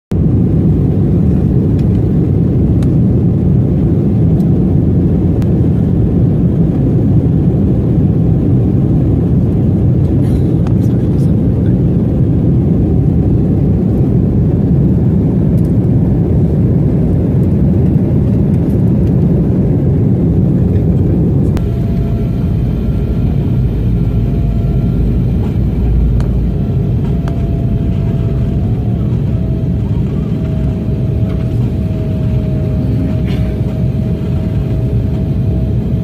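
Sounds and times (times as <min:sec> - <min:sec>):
airliner cabin engine rush: 0:00.1 - 0:36.0
faint steady whine: 0:20.4 - 0:36.0.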